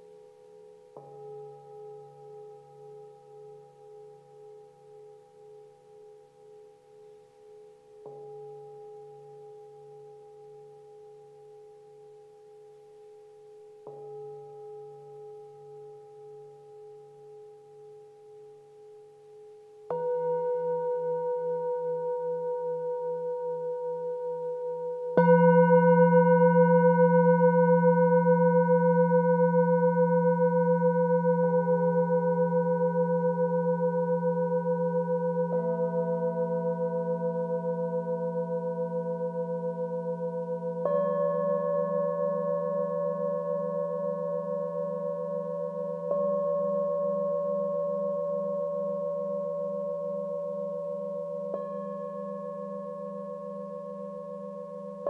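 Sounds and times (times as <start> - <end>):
metal singing bowls ringing: 19.9 - 55.0.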